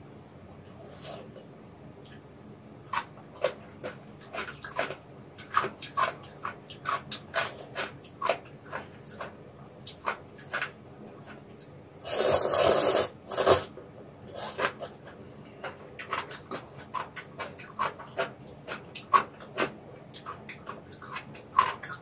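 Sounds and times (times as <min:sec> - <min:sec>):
chewing and lip-smacking: 0:02.9 - 0:11.8, 0:14.4 - 0:22.0
slurping noodles: 0:12.0 - 0:13.7.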